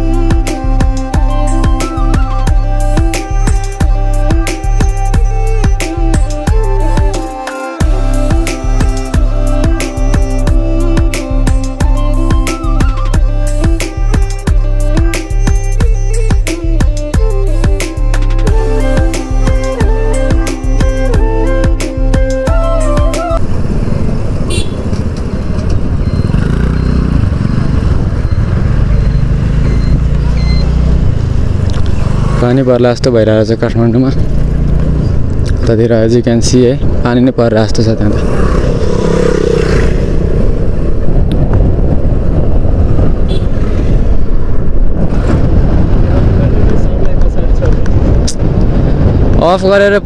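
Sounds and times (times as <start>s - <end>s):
wind noise on microphone: 7.8s - 32.5s, 33.7s - 50.0s
motorcycle engine running: 23.4s - 32.8s, 33.8s - 35.6s, 38.1s - 46.7s
wind buffeting microphone: 34.1s - 50.0s.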